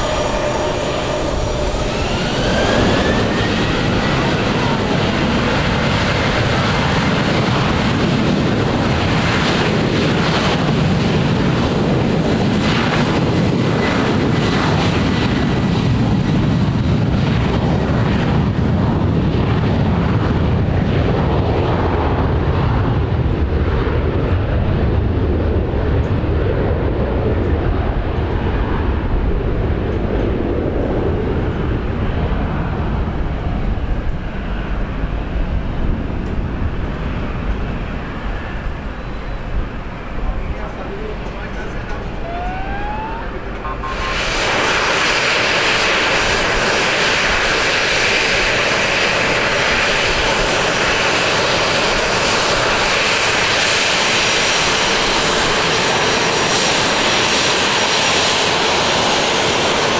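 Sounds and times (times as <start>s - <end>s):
faint high whine: 0.0s - 6.6s, 31.0s - 46.2s
jet engines roaring at takeoff: 0.0s - 59.9s.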